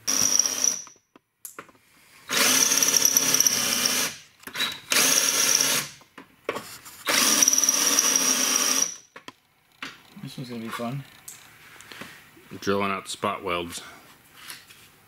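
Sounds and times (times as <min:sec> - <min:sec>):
cordless drill boring through metal: 0:00.0 - 0:00.9, 0:02.3 - 0:05.9, 0:07.1 - 0:09.0.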